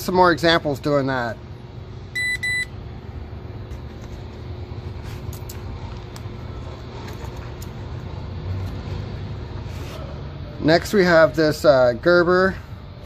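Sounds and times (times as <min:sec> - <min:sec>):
distant road traffic: 0:02.7 - 0:13.0.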